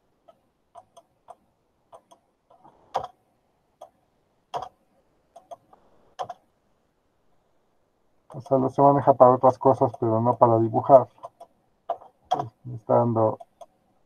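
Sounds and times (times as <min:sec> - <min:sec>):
computer mouse clicking: 0:00.2 - 0:03.2, 0:03.8 - 0:06.5, 0:11.1 - 0:12.5, 0:13.3 - 0:13.8.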